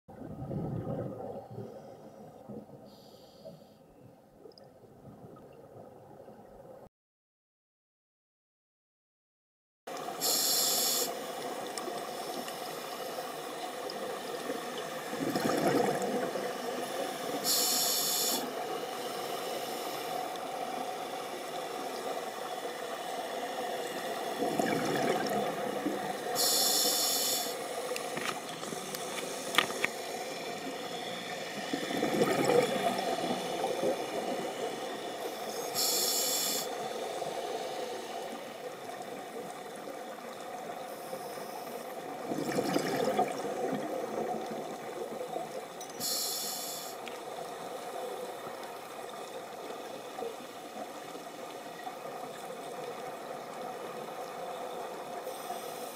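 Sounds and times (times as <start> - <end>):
exhaled bubbles rushing underwater: 0.1 - 2.8, 4.6 - 6.8, 13.8 - 17.4, 23.8 - 26.4, 28.6 - 35.2, 42.0 - 45.7
regulator inhale hiss: 2.8 - 3.9, 10.2 - 11.4, 16.9 - 20.5, 26.2 - 31.8, 34.4 - 38.5, 40.8 - 42.0, 46.0 - 47.1, 55.2 - 55.9.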